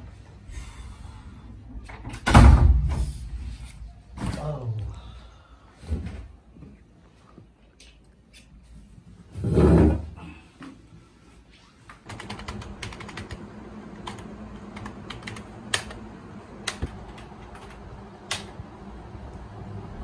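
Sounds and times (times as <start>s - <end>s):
typing on a laptop keyboard: 12.1s - 13.4s, 14.0s - 16.0s.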